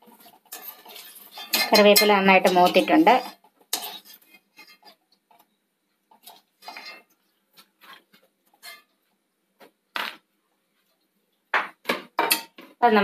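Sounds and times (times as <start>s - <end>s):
fried leaves rustling: 0.0s - 9.2s
skimmer clinking on metal pan: 0.5s - 4.0s.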